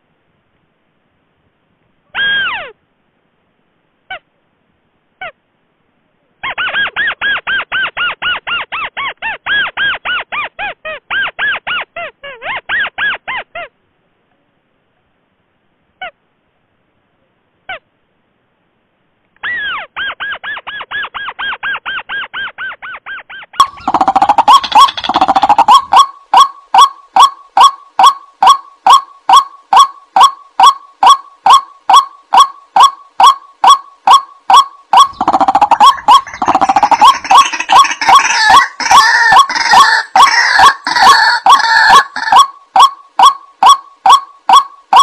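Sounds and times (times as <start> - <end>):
louder lower bird calls: 23.4 - 45.0
rails calling: 23.6 - 45.0.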